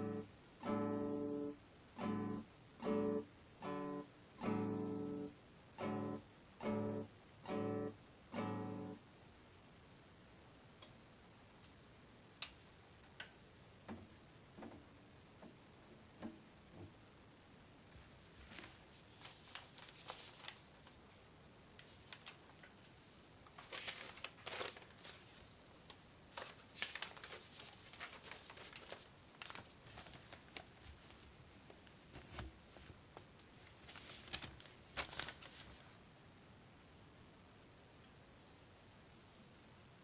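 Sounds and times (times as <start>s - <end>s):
paper rustling and crinkling: 18.0s - 21.2s, 21.8s - 36.0s.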